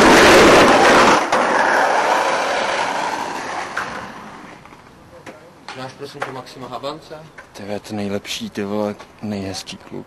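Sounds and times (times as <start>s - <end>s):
skateboard wheels rolling on concrete: 0.0s - 6.7s.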